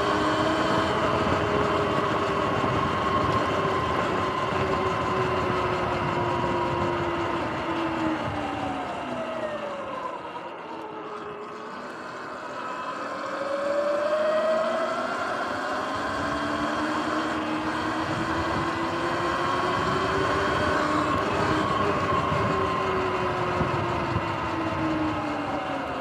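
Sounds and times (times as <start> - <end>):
wind noise: 0.0 - 9.7, 15.4 - 26.0
electric motorbike motor whining: 0.0 - 26.0.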